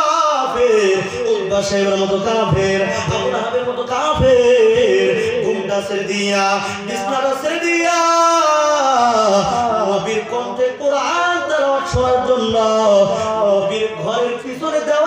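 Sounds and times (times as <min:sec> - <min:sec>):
man chanting into a microphone: 0:00.0 - 0:15.0.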